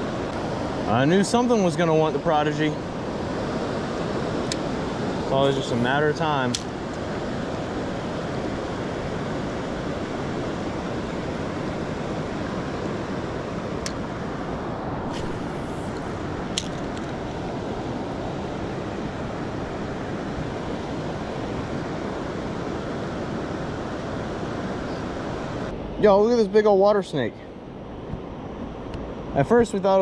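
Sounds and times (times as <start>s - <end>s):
wind on microphone: 2.8s - 26.0s.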